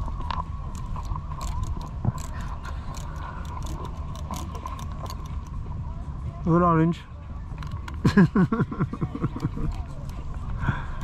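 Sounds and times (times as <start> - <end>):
camel chewing: 0.0 - 5.6.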